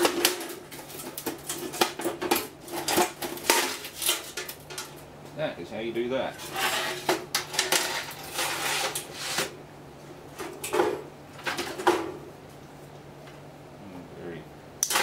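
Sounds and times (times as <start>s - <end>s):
low steady hum: 0.0s - 15.0s
sheet metal clatter and scraping: 6.3s - 9.5s.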